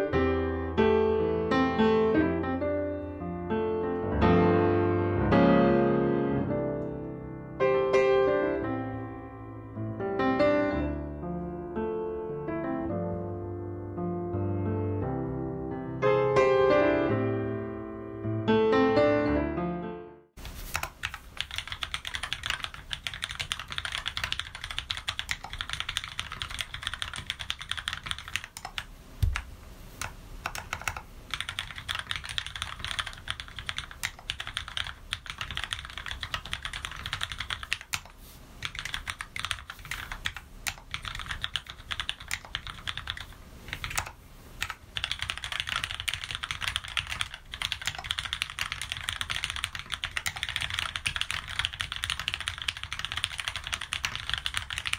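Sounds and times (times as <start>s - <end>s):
keyboard typing: 20.6s - 54.9s.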